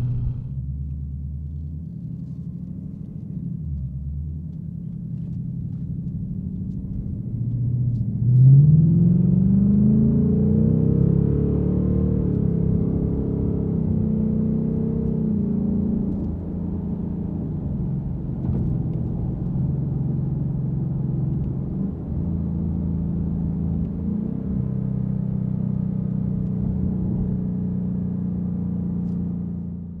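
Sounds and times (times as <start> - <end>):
car exhaust drone in cabin: 0.0 - 3.3.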